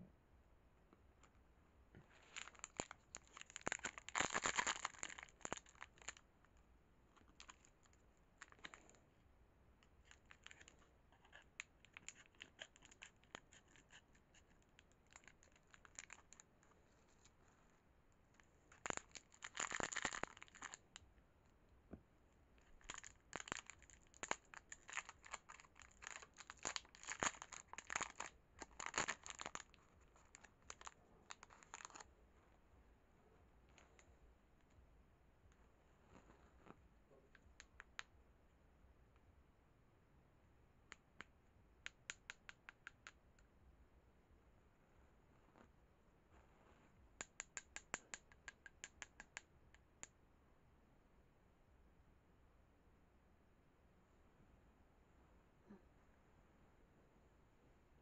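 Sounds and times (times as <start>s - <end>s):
plastic wrapper crackling: 2.2s - 6.2s, 10.0s - 16.5s, 18.7s - 20.8s, 22.6s - 32.1s.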